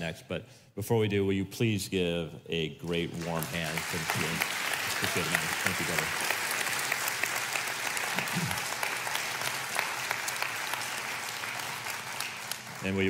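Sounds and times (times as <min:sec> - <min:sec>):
audience applauding: 0:03.1 - 0:13.0.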